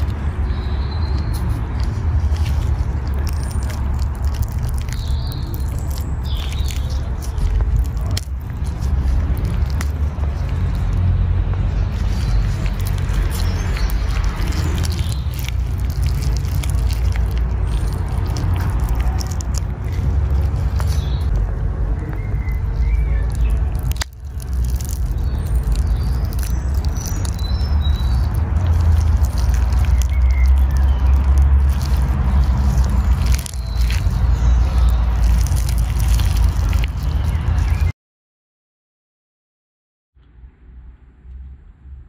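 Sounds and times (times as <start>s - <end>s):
avocado squelching and crackling: 0.0s - 37.9s
small birds chirping: 0.0s - 37.9s.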